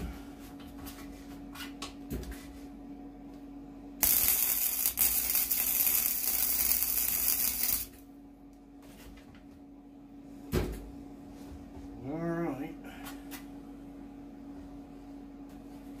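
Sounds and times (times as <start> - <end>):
steady low hum: 0.0 - 16.0
welder arc crackling and hissing: 4.0 - 8.0.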